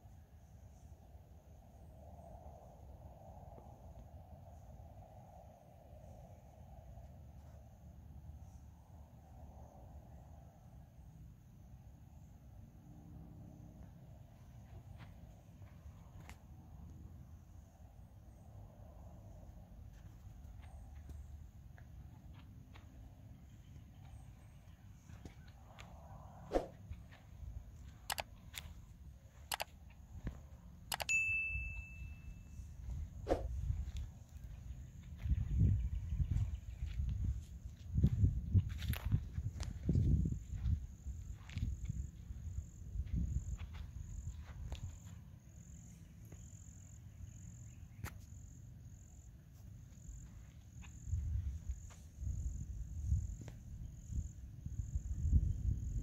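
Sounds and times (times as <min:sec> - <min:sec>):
low outdoor rumble: 0:00.1 - 0:30.9
mouse clicks: 0:28.1 - 0:28.3, 0:29.5 - 0:29.7
faint clicks: 0:29.3 - 0:29.8
bell ding: 0:31.0 - 0:32.6
insects trilling chorus: 0:38.7 - 0:56.0.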